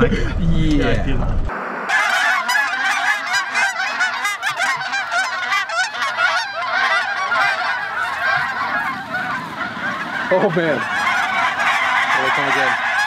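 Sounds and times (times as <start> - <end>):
flock of geese honking: 1.9 - 13.0.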